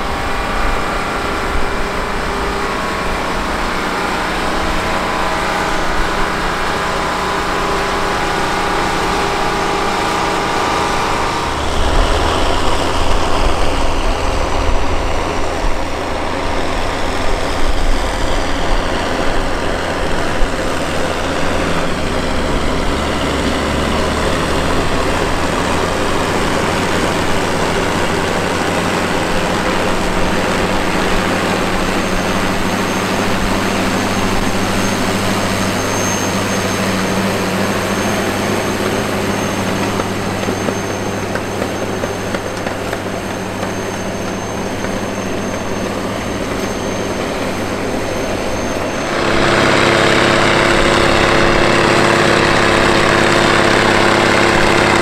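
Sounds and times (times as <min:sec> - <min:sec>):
deep rough diesel drone with whine: 0:00.0 - 0:55.0
tractor diesel engine running: 0:00.0 - 0:55.0.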